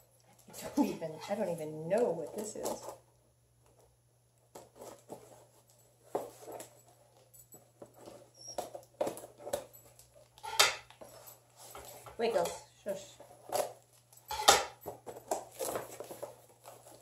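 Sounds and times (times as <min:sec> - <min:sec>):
paper crinkling: 0:04.4 - 0:12.3, 0:14.8 - 0:17.0.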